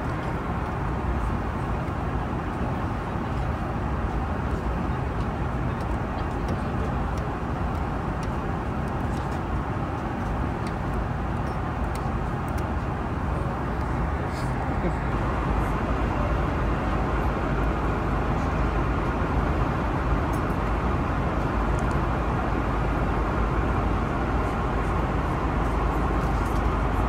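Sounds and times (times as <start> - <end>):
vehicle rumble: 0.0 - 27.0.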